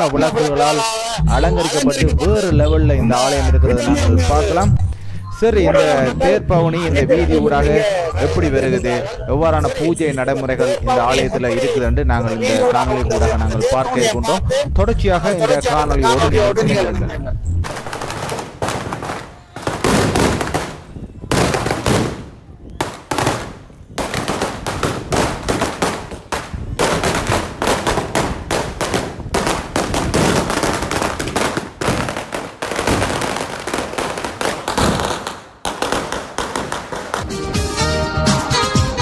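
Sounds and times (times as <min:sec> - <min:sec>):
firecrackers banging: 0:17.6 - 0:37.4.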